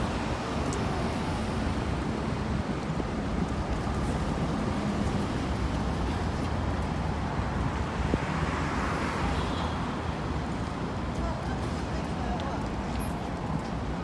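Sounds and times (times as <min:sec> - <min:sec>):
rumble of passing vehicles: 0:00.0 - 0:14.0.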